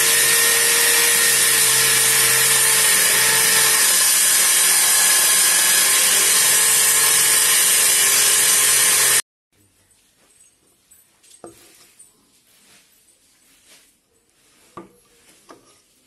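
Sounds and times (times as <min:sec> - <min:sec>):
circular saw cutting wood: 0:00.0 - 0:09.2.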